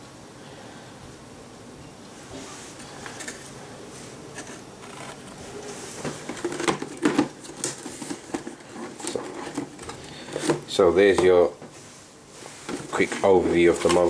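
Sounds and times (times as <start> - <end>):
hands rustling cardboard box: 4.3 - 14.0.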